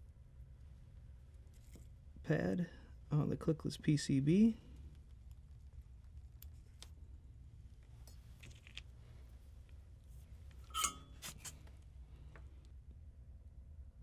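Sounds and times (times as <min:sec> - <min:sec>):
steady low hum: 0:00.0 - 0:14.0
metallic clink: 0:10.6 - 0:11.5.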